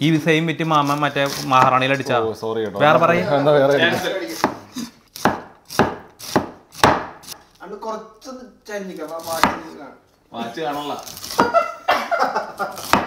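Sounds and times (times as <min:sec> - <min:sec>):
knife chopping on wooden board: 0:04.4 - 0:07.4, 0:09.2 - 0:09.7, 0:12.7 - 0:13.0.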